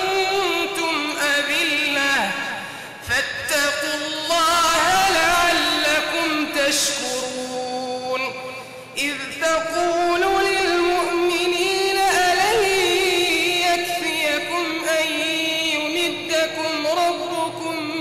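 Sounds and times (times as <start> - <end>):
man reciting in melodic chant: 0.0 - 18.0.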